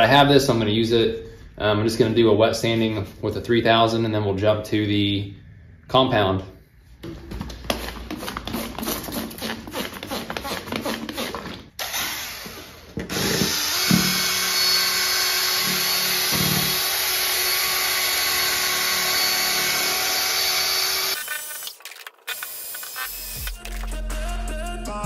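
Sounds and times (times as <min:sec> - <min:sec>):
cordless drill sanding: 0:07.8 - 0:21.7.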